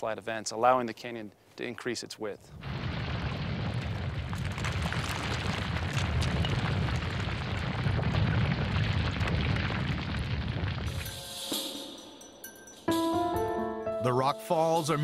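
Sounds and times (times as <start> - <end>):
rocks tumbling and crashing: 2.5 - 11.2.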